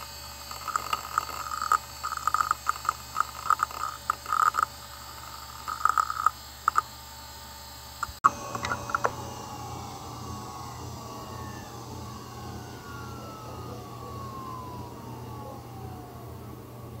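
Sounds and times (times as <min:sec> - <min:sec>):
hard drive whine spinning down: 0:00.0 - 0:17.0
low steady hum: 0:07.0 - 0:17.0.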